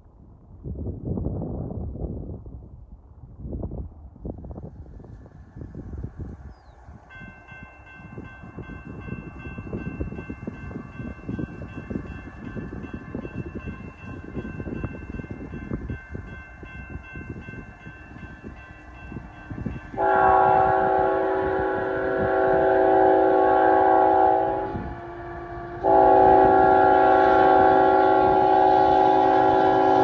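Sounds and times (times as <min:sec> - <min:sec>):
wind on microphone: 0:00.0 - 0:30.0
locomotive horn: 0:19.9 - 0:30.0.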